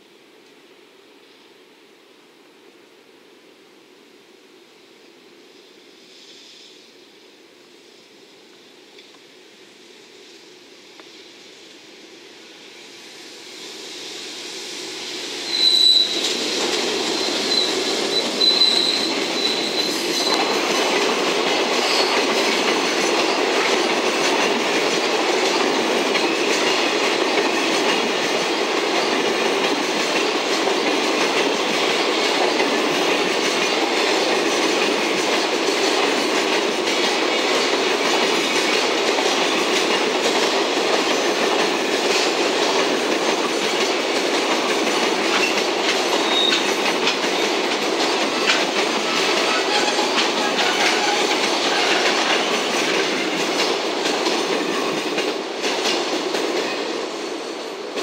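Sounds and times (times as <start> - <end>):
high wheel squeal: 15.4 - 20.6, 21.8 - 22.3, 46.2 - 46.8, 49.0 - 52.5
train wagons rumbling and clattering: 15.5 - 58.0.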